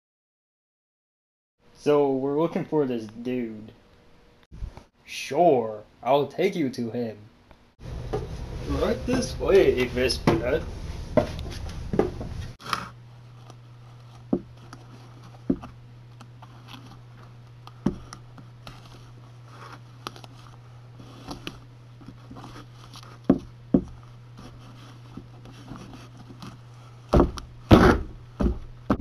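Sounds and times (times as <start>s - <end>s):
steady low hum: 1.6s - 29.0s
thumps: 14.3s - 14.6s, 17.8s - 18.2s, 23.2s - 24.0s, 27.1s - 29.0s.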